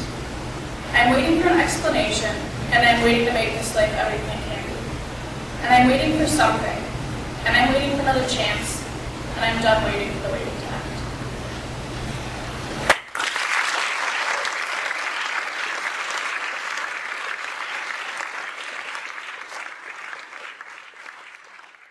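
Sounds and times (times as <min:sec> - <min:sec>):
audience applauding: 0:12.9 - 0:21.9.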